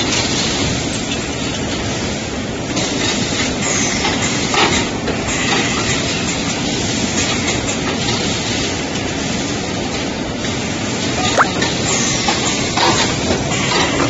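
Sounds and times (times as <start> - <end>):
machine rattle and hiss: 0.0 - 10.7.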